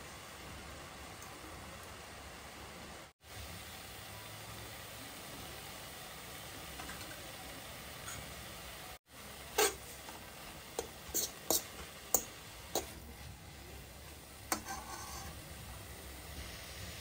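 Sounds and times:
faint steady hiss: 0.0s - 17.0s
metal spatula scraping a wok: 9.6s - 10.0s, 10.8s - 13.2s, 14.5s - 15.6s.

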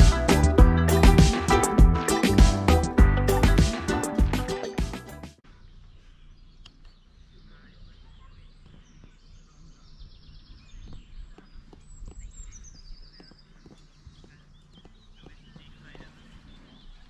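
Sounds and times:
small birds chirping: 5.4s - 17.0s.

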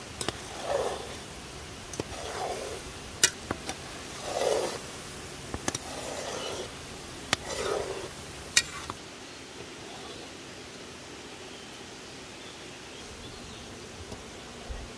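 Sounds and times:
skimmer scraping pot of jam: 1.9s - 4.9s, 5.5s - 9.0s.

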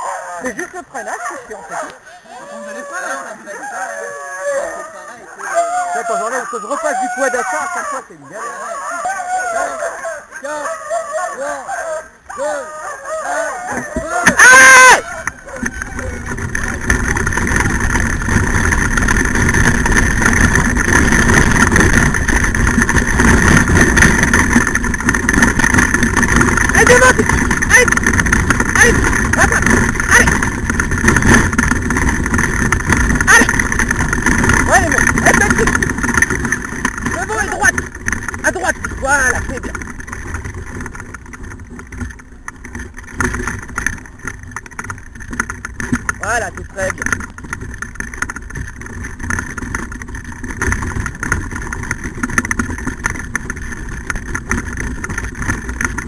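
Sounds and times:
cart wheels rumbling on dirt: 0.0s - 56.0s
fine rattling: 13.9s - 56.0s.

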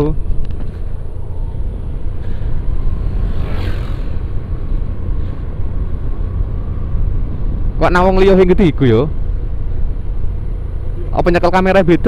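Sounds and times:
wind and road noise: 0.0s - 12.0s
brief whoosh: 1.4s - 5.6s.

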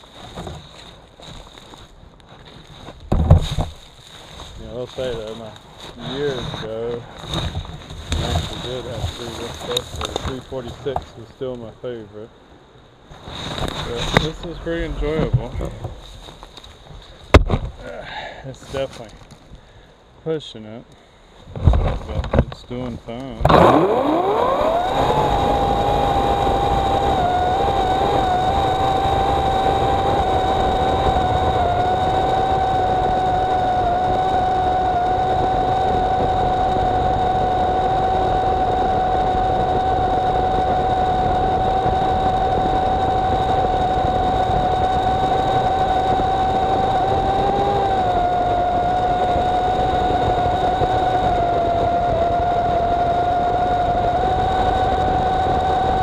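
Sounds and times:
electric chainsaw cutting log: 23.5s - 56.0s.

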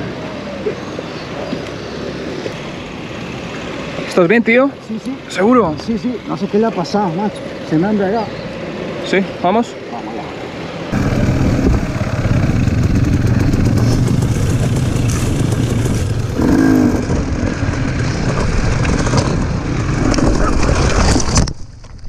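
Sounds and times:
dirt bike engine under throttle: 10.9s - 21.1s.

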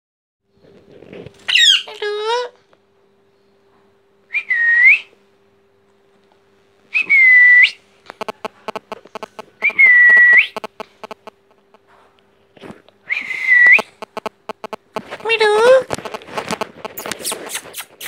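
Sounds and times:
soft rapid clicks: 8.1s - 11.8s, 13.8s - 18.0s.

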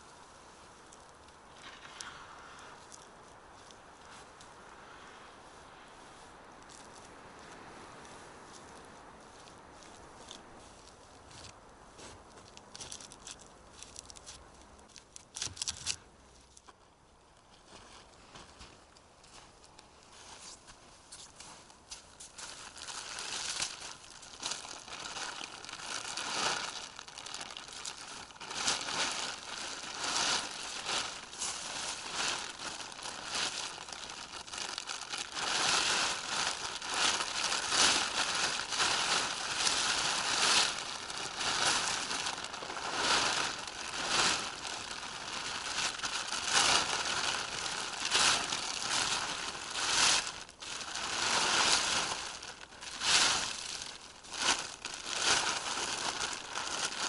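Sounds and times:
tarp crinkling and rustling: 0.0s - 5.0s, 8.1s - 16.7s, 17.4s - 57.0s.

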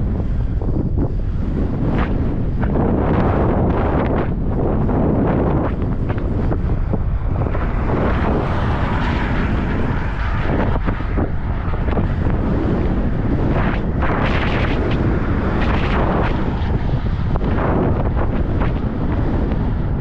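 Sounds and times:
low rumble: 0.0s - 20.0s
wind rushing over microphone: 0.0s - 20.0s.

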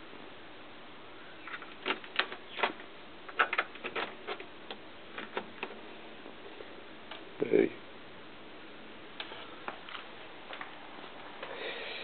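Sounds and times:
plugs bumping plastic panel: 1.5s - 5.8s.

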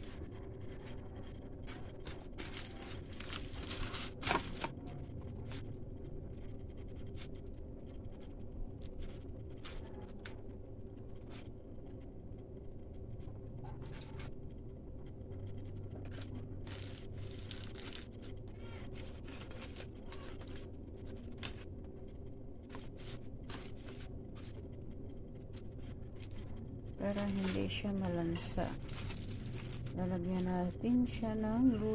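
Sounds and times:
aluminium foil crinkling: 0.0s - 11.5s, 15.6s - 31.7s
steady low hum: 0.0s - 31.9s.

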